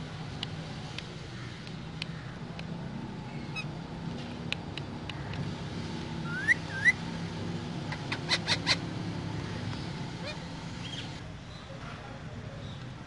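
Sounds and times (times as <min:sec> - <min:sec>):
parakeet whistles: 0:06.2 - 0:07.0.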